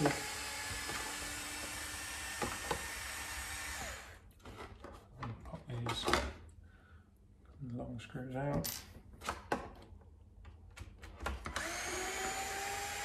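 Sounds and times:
electric screwdriver running: 0:00.0 - 0:04.2, 0:11.5 - 0:13.0.

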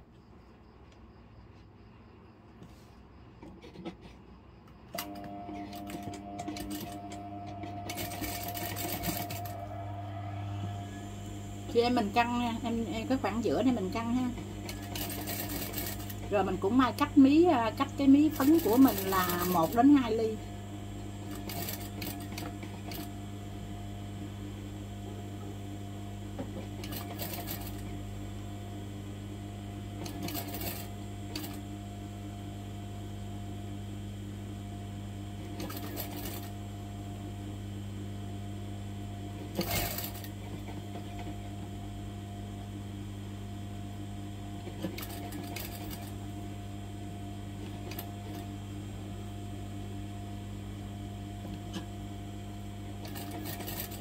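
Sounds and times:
sewing machine running: 0:05.0 - 0:10.0, 0:10.7 - 0:20.5, 0:21.2 - 0:23.1, 0:26.4 - 0:27.9, 0:30.0 - 0:31.6, 0:35.5 - 0:36.6, 0:39.4 - 0:41.4, 0:44.6 - 0:46.2, 0:47.6 - 0:48.5, 0:53.0 - 0:54.0.

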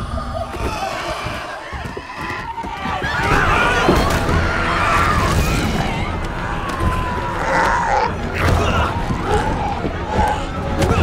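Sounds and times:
people screaming and shouting: 0:00.0 - 0:11.0.

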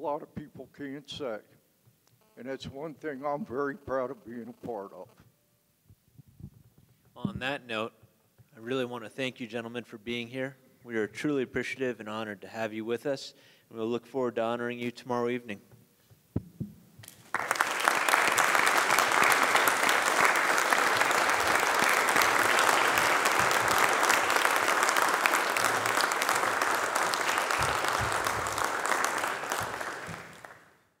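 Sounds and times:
audience applauding: 0:17.0 - 0:30.8.

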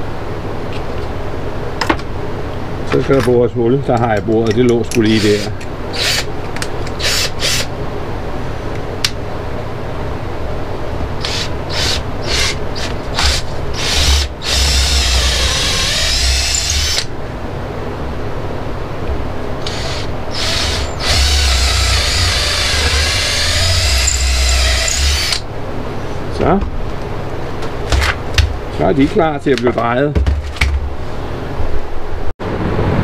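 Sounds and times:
power drill boring into wood: 0:11.2 - 0:17.1, 0:19.6 - 0:25.4.

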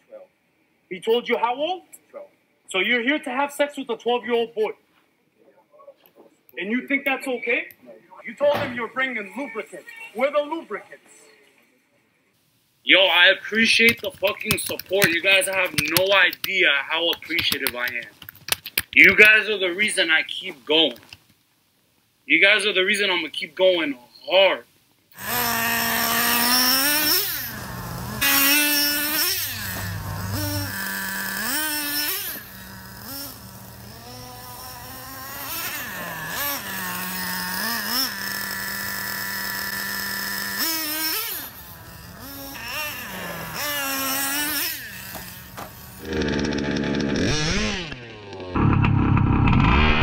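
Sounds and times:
rc truck motor revving: 0:25.2 - 0:50.0
two-stroke gas engine: 0:25.2 - 0:50.0.

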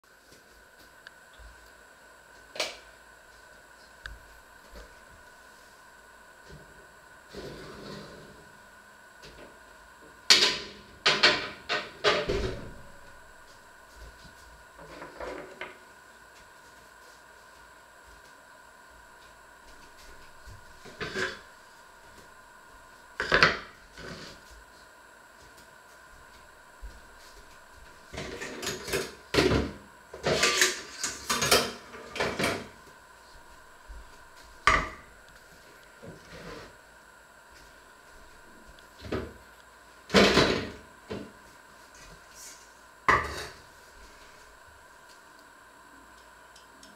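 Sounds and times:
kitchen knocks and clatters: 0:10.3 - 0:12.7, 0:40.1 - 0:40.8, 0:43.1 - 0:43.6.

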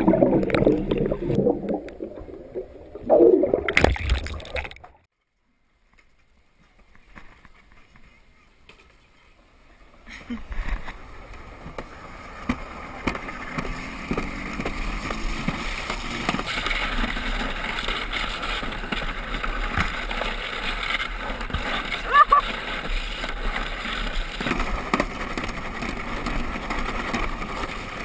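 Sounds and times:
sled rushing down concrete track: 0:06.4 - 0:28.0.

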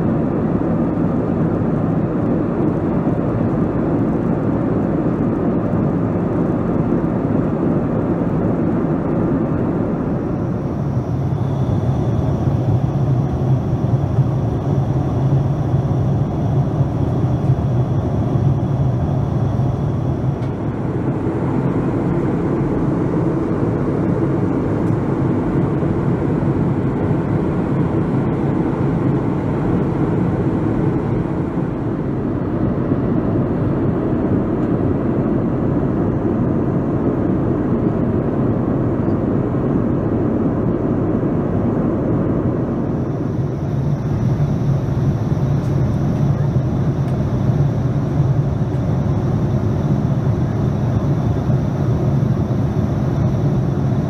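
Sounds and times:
airplane cabin noise: 0:00.0 - 0:54.0
faint high whine: 0:10.0 - 0:33.8.

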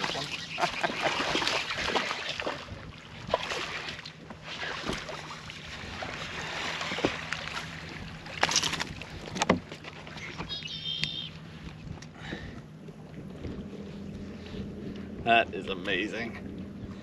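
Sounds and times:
fish splashing at water surface: 0:00.0 - 0:02.7
water noise: 0:00.0 - 0:17.0
wind: 0:00.0 - 0:17.0.

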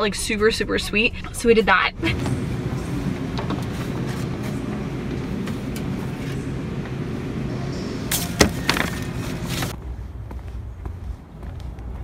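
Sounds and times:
refrigerator hum: 0:02.0 - 0:09.8.

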